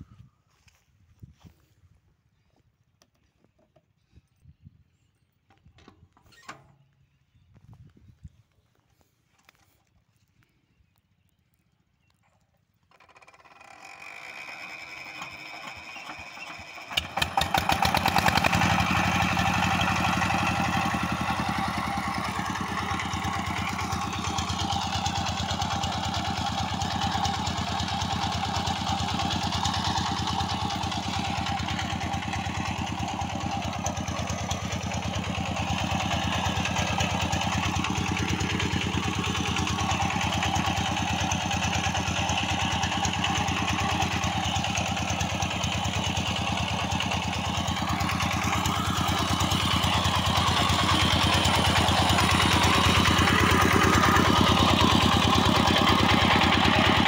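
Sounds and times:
diesel engine starting: 12.8 - 57.0.

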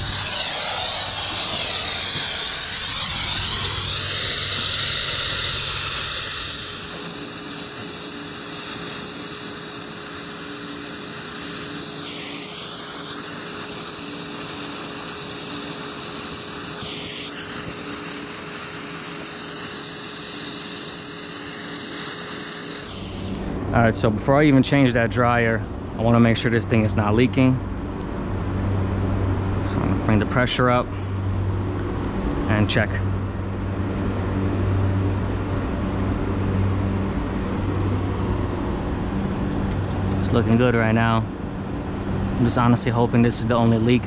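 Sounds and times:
brazing torch hissing roar: 0.0 - 23.7.

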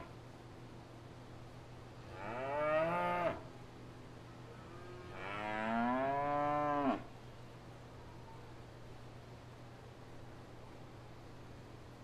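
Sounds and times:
faint low hum: 0.0 - 12.0
cow mooing: 5.0 - 7.1.

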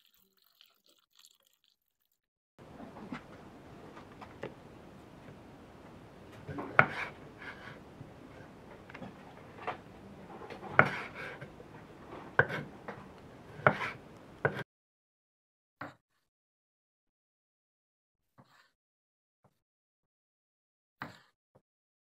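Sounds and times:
light clatter and scraping: 2.6 - 14.6.

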